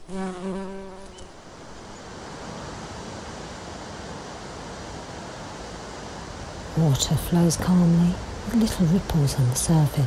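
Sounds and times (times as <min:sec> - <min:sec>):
bumblebee buzzing: 0:00.0 - 0:01.4
flowing river water: 0:01.4 - 0:10.0.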